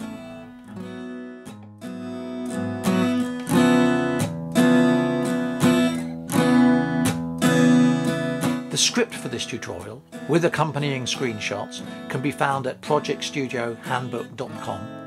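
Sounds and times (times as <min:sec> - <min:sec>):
strummed acoustic guitar music: 0:00.0 - 0:15.0.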